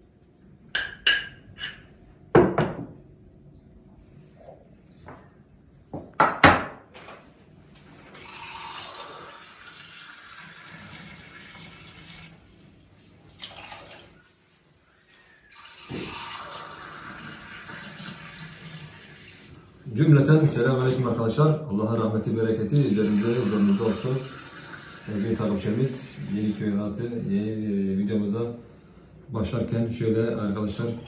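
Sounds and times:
water running from a tap: 8.2 - 12.4, 13.2 - 14.2, 15.5 - 19.6, 22.7 - 26.7.

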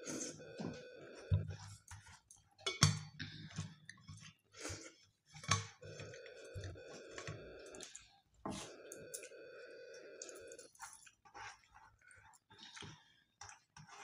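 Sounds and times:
steel tableware clinking: 2.6 - 3.2
eating by hand: 5.8 - 14.0.

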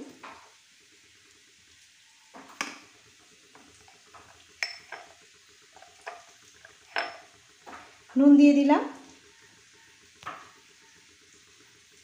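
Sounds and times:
metal spoon clinking: 4.6 - 5.1, 5.8 - 7.3.

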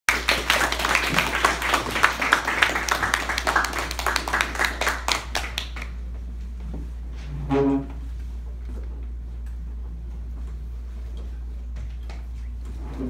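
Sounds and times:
audience applauding: 0.1 - 6.0.

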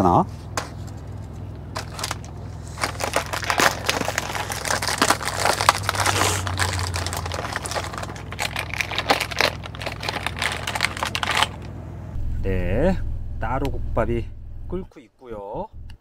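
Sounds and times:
plastic packaging crinkling: 1.7 - 11.7.

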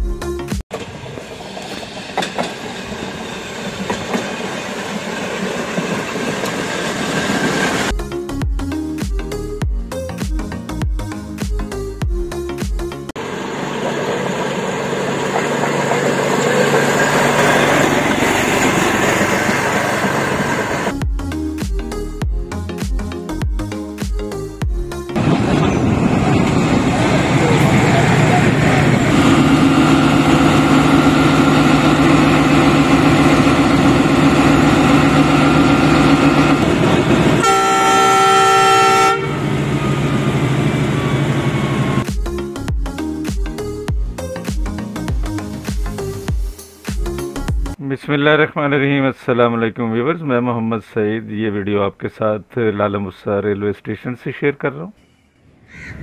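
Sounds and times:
music: 0.0 - 0.6, 7.9 - 13.2, 20.9 - 25.2, 42.0 - 47.9
locomotive engine running: 13.2 - 20.9, 25.2 - 42.1
locomotive horn blast: 27.1 - 42.0.

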